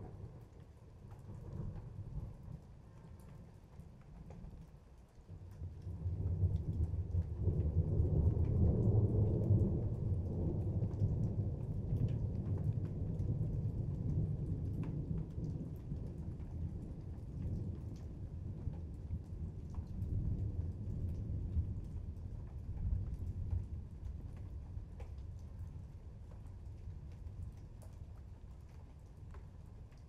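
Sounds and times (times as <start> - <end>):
raindrops ticking: 0.1 - 30.0
thunder rumbling: 6.0 - 24.9.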